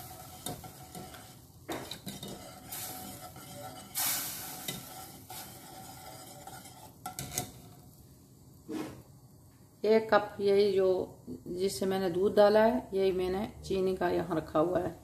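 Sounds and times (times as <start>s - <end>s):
whisk scraping a metal pan: 0.0s - 7.8s
faint steady hiss: 0.0s - 15.0s.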